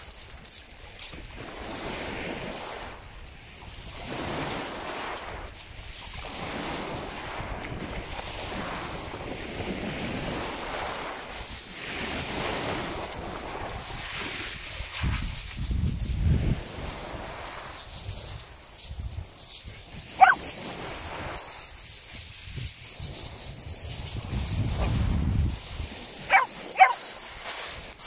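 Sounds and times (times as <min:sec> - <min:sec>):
dogs splashing in surf: 0:00.0 - 0:03.0, 0:03.7 - 0:28.0
waves washing up shingle beach: 0:00.0 - 0:28.0
wind buffeting microphone: 0:15.0 - 0:17.3, 0:17.9 - 0:27.0.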